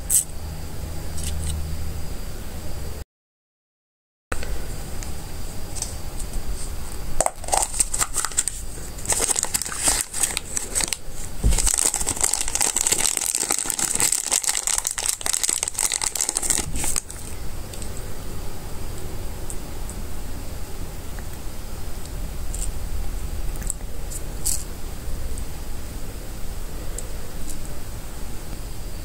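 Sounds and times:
plastic bag crinkling: 0:07.2 - 0:17.4.

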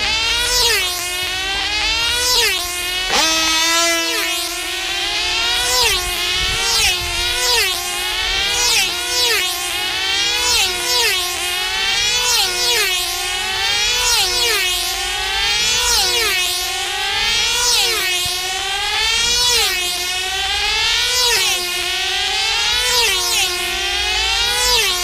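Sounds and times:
model plane engines whining past: 0:00.0 - 0:25.0
steady tone: 0:03.0 - 0:07.2.

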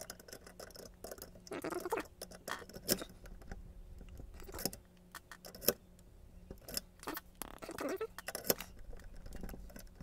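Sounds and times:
key blank clicking and scraping in lock: 0:00.0 - 0:01.4, 0:04.4 - 0:05.8, 0:08.1 - 0:10.0.

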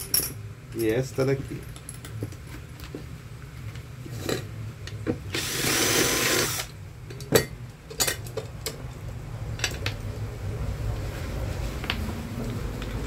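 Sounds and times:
cordless drill boring metal: 0:05.3 - 0:06.7.

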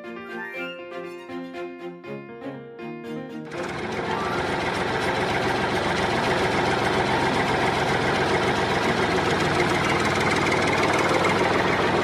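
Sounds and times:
heavy vehicle engine running: 0:03.5 - 0:12.0.

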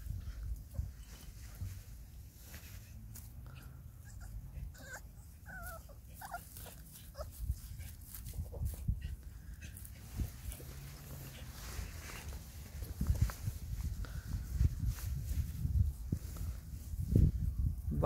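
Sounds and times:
rustling: 0:00.0 - 0:03.7, 0:04.8 - 0:17.4
puppies whimpering: 0:04.0 - 0:07.3.

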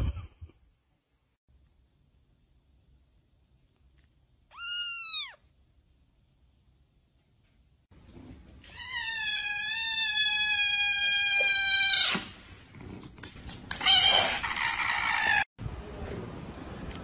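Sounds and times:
kitten meowing: 0:04.5 - 0:05.4.

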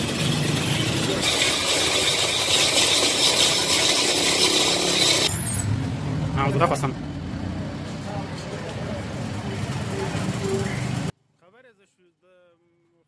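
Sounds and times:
crank mechanical rattle: 0:00.0 - 0:05.3
ice shaver scraping ice: 0:00.0 - 0:05.3.

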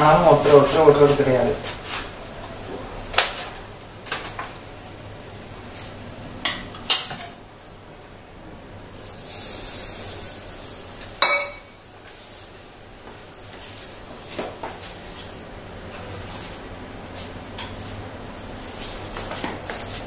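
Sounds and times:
kitchen utensils clinking: 0:06.4 - 0:07.4, 0:11.2 - 0:16.5
short hiss: 0:09.0 - 0:10.8.

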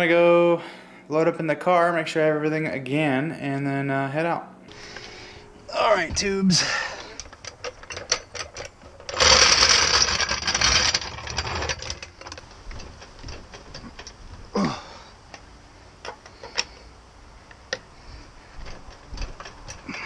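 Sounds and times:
floor jack wheels rattling on concrete: 0:06.6 - 0:14.7.

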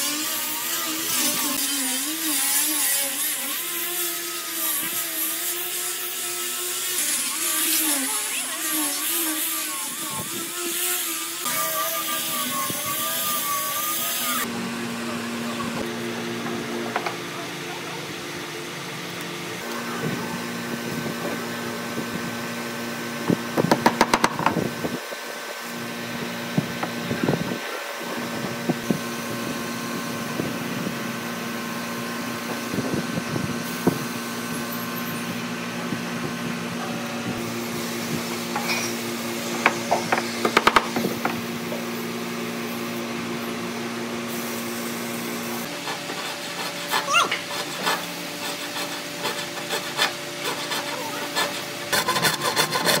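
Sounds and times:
saw rasping through wood: 0:00.0 - 0:14.5, 0:45.6 - 0:53.0
steady workshop hum: 0:00.0 - 0:53.0.

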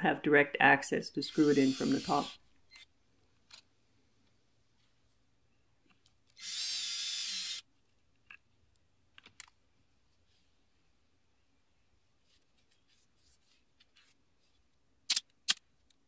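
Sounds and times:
drill driving screw: 0:01.3 - 0:02.8, 0:06.4 - 0:07.6.

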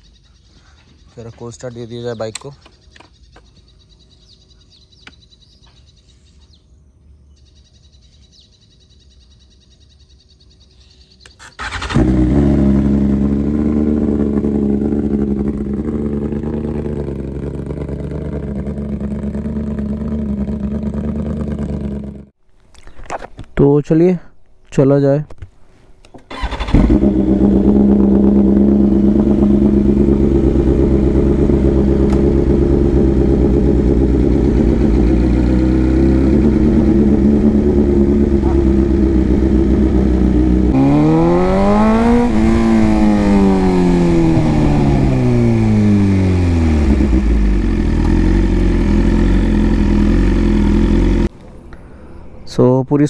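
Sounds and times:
motorcycle engine idling and revving: 0:11.3 - 0:22.4, 0:26.3 - 0:51.3.

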